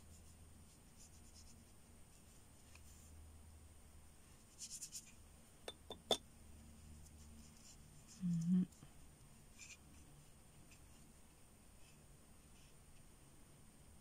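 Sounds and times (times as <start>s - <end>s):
brush stroking on paper: 0.0s - 3.2s, 4.2s - 5.2s, 6.6s - 13.1s.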